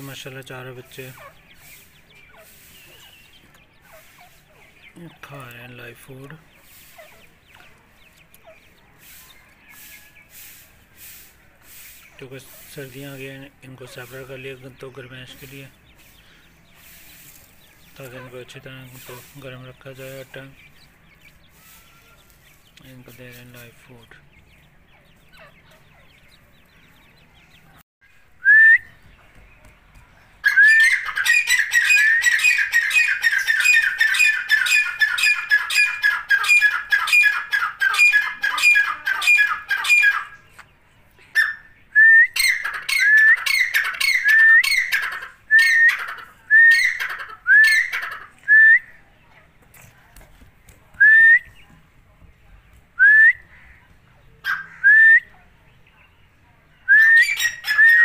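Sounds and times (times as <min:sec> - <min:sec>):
bird whistled calls: 0:30.4 - 0:37.3, 0:41.4 - 0:44.9, 0:45.5 - 0:49.0, 0:56.9 - 0:58.0.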